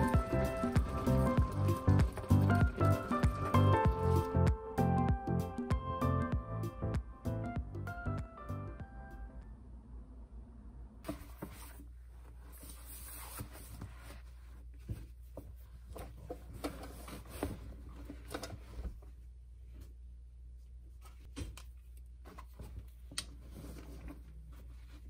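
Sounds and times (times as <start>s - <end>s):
canvas bag rustling: 0.0s - 4.4s.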